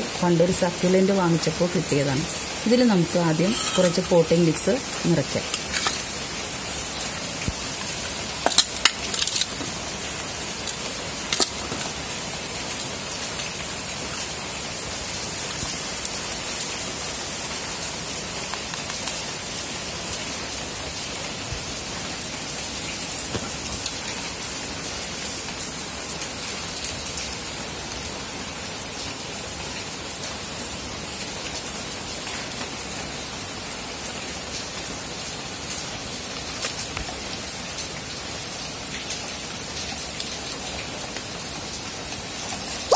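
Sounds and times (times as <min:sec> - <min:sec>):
steady hiss: 0:00.0 - 0:25.6.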